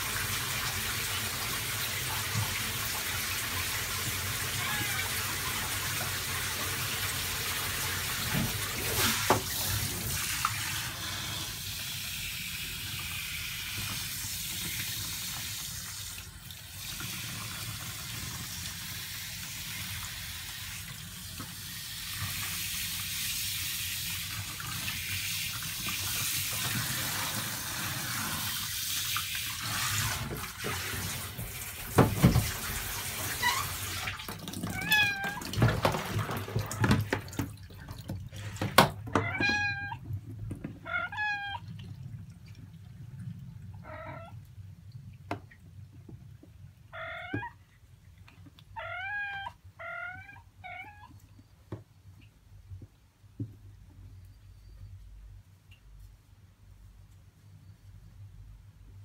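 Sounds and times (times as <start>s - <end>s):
kitten mewing: 4.6s - 5.2s.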